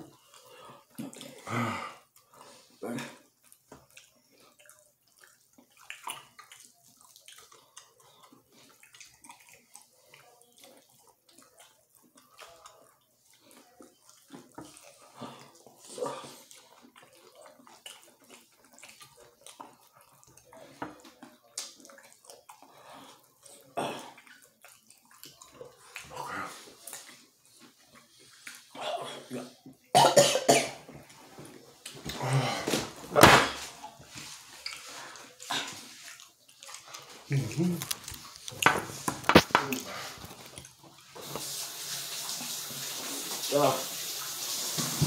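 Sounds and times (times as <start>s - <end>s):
wet chewing: 0.1s - 29.8s, 33.7s - 41.4s
lip smacking: 2.1s - 29.5s.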